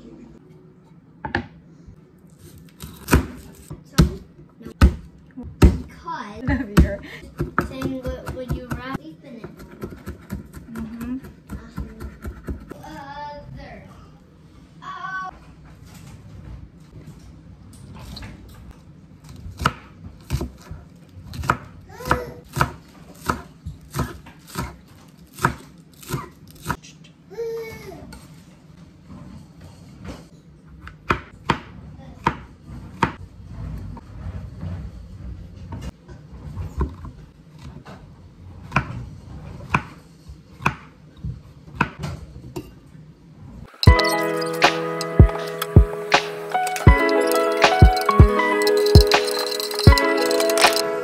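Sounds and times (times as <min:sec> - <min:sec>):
music: 0:43.8 - 0:51.0.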